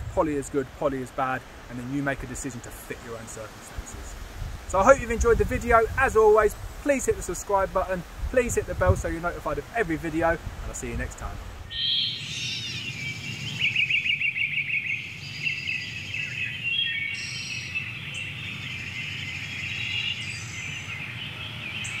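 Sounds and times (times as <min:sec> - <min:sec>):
songbirds singing: 0:11.7 - 0:22.0.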